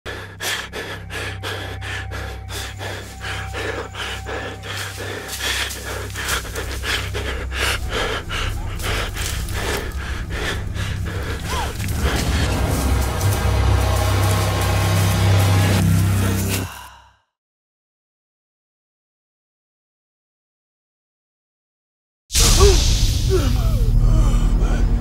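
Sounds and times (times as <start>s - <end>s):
person panting and gasping: 0.1s - 14.9s, 15.5s - 17.3s, 22.5s - 25.0s.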